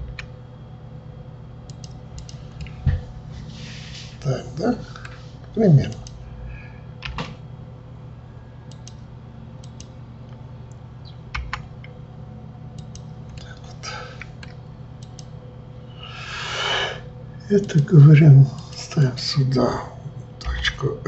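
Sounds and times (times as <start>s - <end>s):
low electrical hum: 0.0s - 21.0s
keyboard and mouse clicks: 1.7s - 2.8s, 7.0s - 7.4s, 8.7s - 9.0s, 11.3s - 11.9s, 12.8s - 13.5s.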